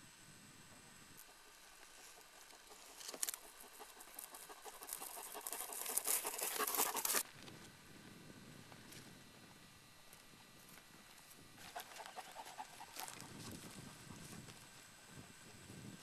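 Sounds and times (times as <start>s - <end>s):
dry stubble crackling: 1.2s - 7.2s.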